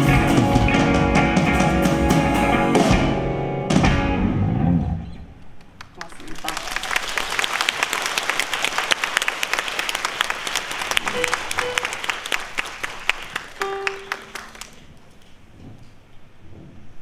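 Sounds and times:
audience applauding: 0:05.6 - 0:15.3.

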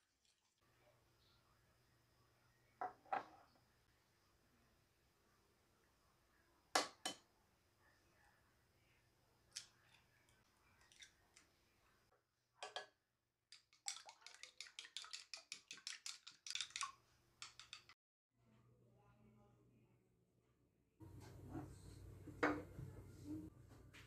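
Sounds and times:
chopsticks beating eggs in bowl: 0:13.5 - 0:18.0.

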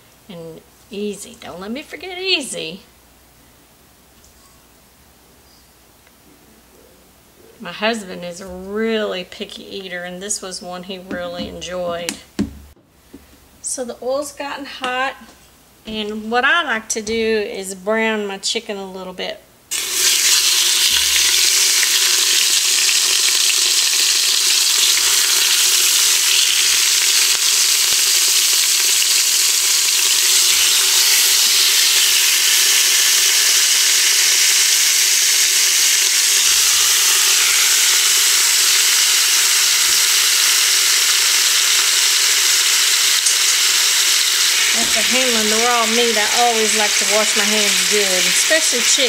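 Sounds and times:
chicken sizzling in hot oil: 0:19.7 - 0:49.0.

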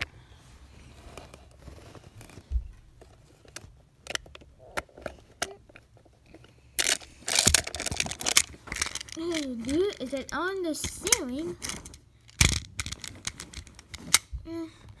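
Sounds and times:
crackling and rustling: 0:00.0 - 0:14.3
plastic tiles clicking: 0:06.8 - 0:14.3.

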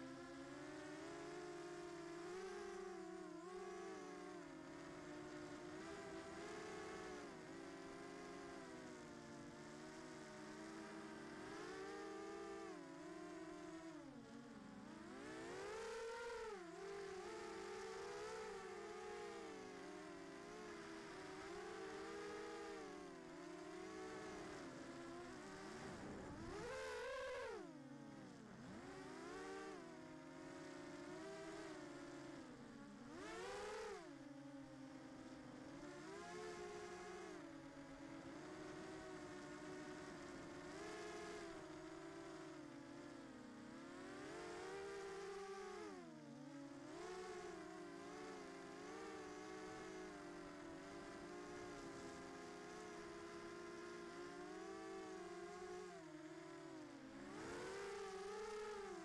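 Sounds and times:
drone motors whining: 0:15.1 - 0:32.3.

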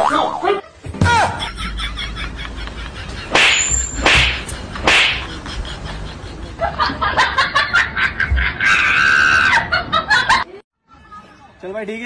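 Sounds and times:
swishing hit sound effects: 0:03.3 - 0:05.3.

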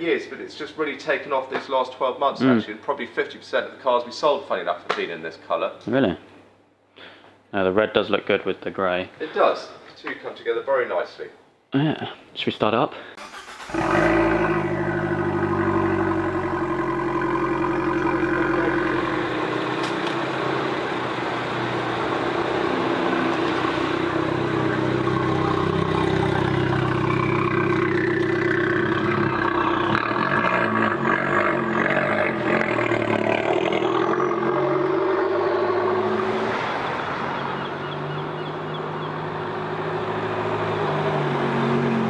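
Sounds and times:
car engine idling: 0:13.2 - 0:35.9.

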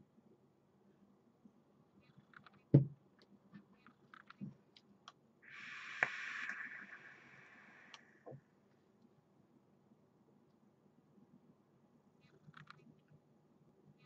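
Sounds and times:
e-cigarette hissing: 0:05.5 - 0:08.3.

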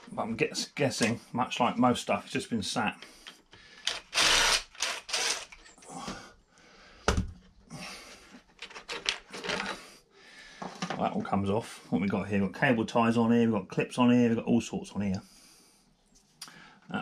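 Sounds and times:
cordless drill running: 0:03.8 - 0:05.6
plastic clicks and rattles: 0:08.6 - 0:09.8.

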